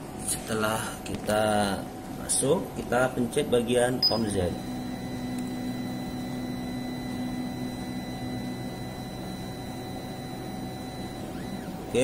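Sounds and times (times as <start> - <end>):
stepper motor humming: 4.1 - 12.0.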